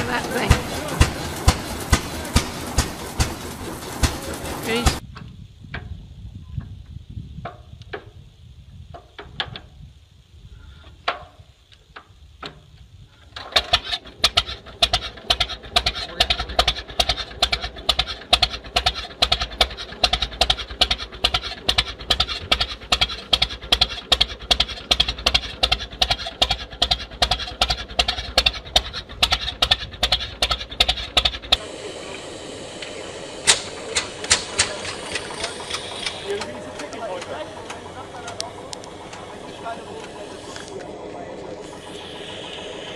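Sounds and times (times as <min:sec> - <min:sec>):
engine being cranked clanks: 0:00.0 - 0:05.0, 0:12.5 - 0:31.6, 0:33.4 - 0:42.9
single-cylinder tractor running: 0:00.0 - 0:05.0, 0:12.4 - 0:42.9
sharp exhaust pops: 0:00.0 - 0:06.0, 0:10.9 - 0:31.6, 0:32.7 - 0:42.9
tractor engine running: 0:00.0 - 0:10.3, 0:11.1 - 0:42.9.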